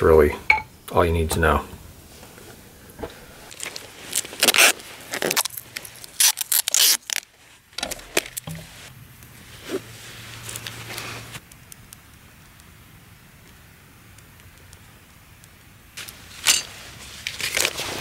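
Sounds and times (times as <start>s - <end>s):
masking tape ripping off roll: 3.5s - 8.9s, 16.0s - 18.0s.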